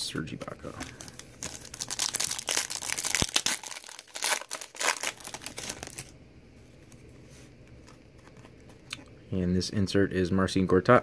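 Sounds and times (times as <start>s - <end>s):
foil wrapper crinkling and tearing: 0.8s - 6.1s.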